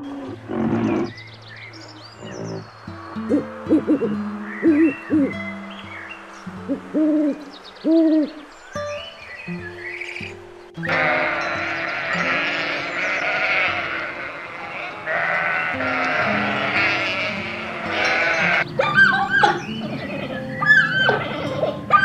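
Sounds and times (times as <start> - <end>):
sheep flock bleating: 10.8 - 18.7, 19.6 - 22.0.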